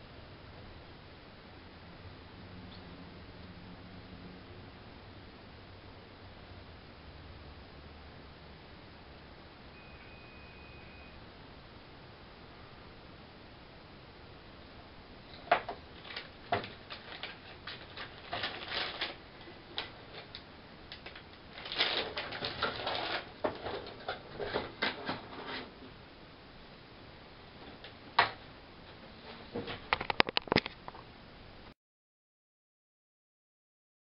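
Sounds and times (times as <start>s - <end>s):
plastic bag crinkling: 15.3s - 24.6s.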